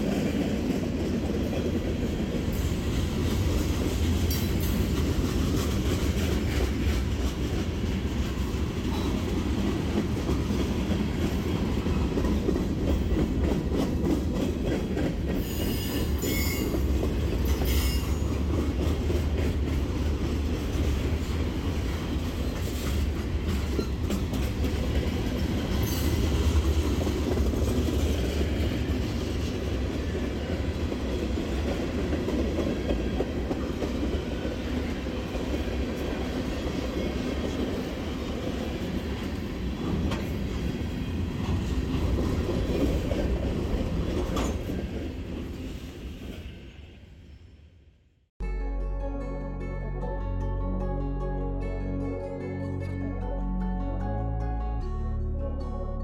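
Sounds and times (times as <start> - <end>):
freight train wheels rumbling: 0.0 - 47.8
high-pitched wheel squeals: 15.4 - 16.8.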